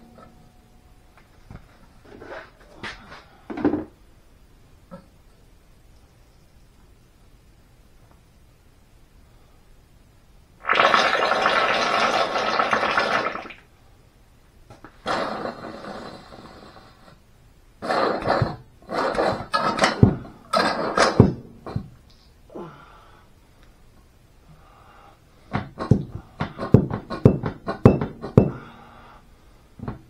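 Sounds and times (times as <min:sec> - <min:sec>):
sharp metal clunks: 0:25.6 - 0:28.6.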